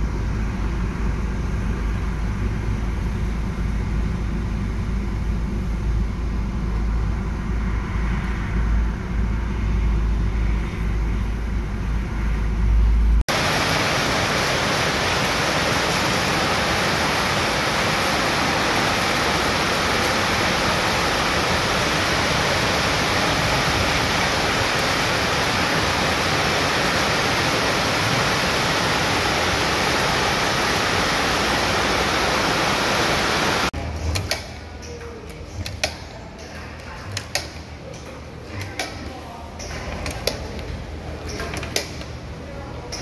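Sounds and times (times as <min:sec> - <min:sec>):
mixing machine rushing noise: 0:13.3 - 0:33.7.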